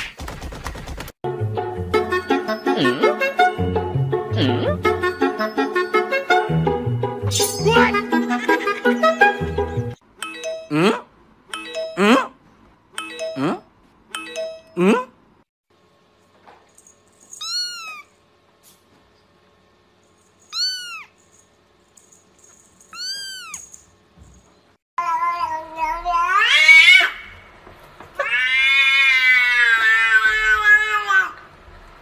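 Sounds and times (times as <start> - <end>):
kitten mewing: 4.3 - 4.8, 17.4 - 18.1, 20.5 - 21.1, 22.9 - 23.6
cat meowing and yowling: 17.4 - 18.1, 20.5 - 21.1, 22.9 - 23.6, 25.0 - 27.4, 28.2 - 31.4.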